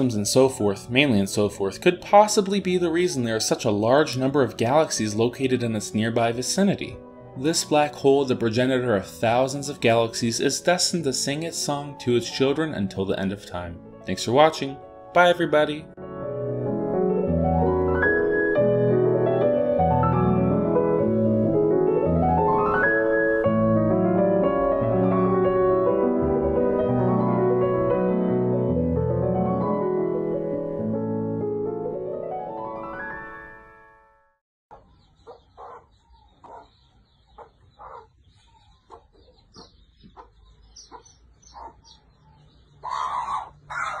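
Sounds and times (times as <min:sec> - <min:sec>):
piano music with arpeggios: 0:00.0 - 0:34.4.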